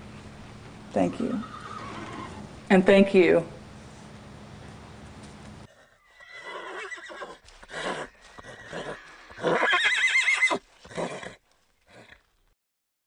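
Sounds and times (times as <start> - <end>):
horse whinnying: 1.3 - 2.5, 5.7 - 12.2.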